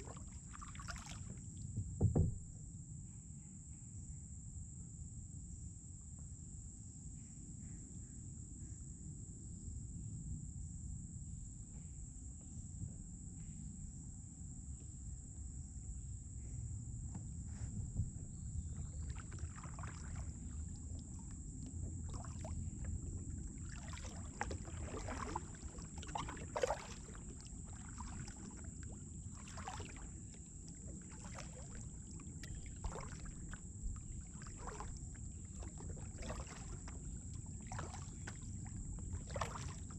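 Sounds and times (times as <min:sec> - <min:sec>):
paddle splashing in water: 0:00.0 - 0:01.4, 0:17.5 - 0:39.9
low steady rumble: 0:12.4 - 0:39.9
water dripping off paddle: 0:18.8 - 0:39.9.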